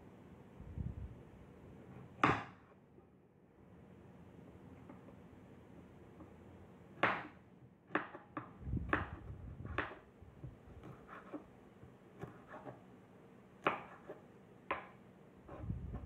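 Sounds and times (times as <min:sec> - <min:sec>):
knife chopping on wooden board: 0:02.0 - 0:02.7, 0:07.0 - 0:10.1, 0:12.2 - 0:12.8, 0:13.6 - 0:16.0
dull rumble of handling: 0:15.5 - 0:16.0.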